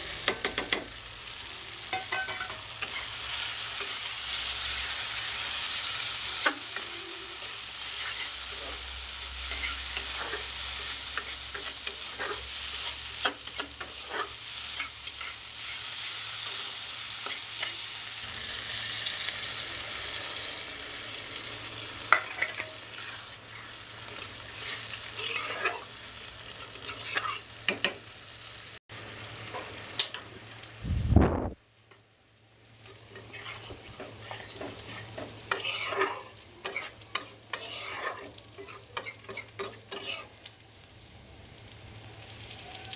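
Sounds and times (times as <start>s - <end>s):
prawns sizzling in oil: 0.0s - 42.9s
metal spatula scraping pan: 6.4s - 17.8s, 22.1s - 23.8s, 24.5s - 25.9s, 26.6s - 27.5s, 33.0s - 40.3s.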